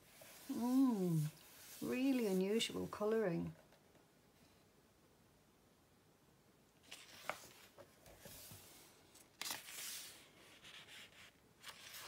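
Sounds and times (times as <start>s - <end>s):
book pages rustling: 6.8s - 12.0s.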